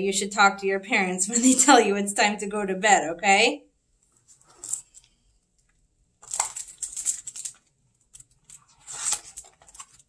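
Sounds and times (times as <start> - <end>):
book pages rustling: 4.1 - 5.1, 6.2 - 10.0.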